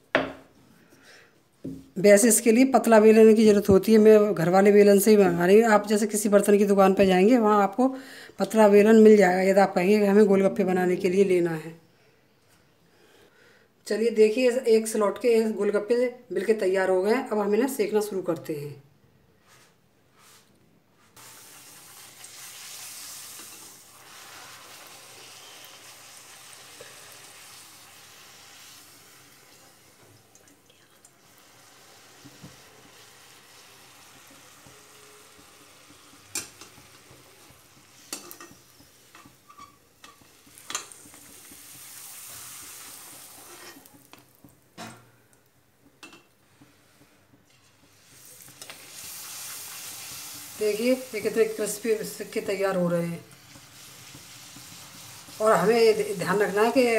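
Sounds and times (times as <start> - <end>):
dough frying in hot oil: 21.0 - 56.9.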